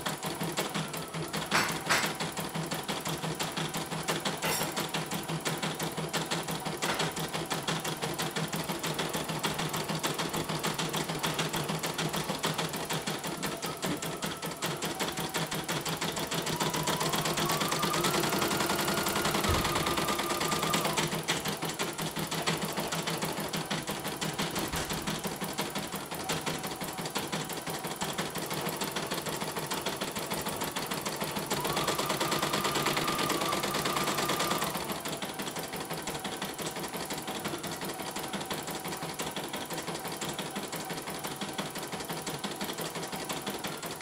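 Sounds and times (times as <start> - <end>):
embroidery machine stitching: 0.0 - 44.0.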